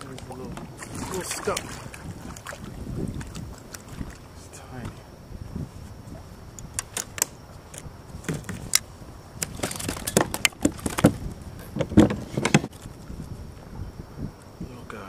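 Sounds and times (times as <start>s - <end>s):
fishing tackle clicking and rattling: 6.6s - 11.2s.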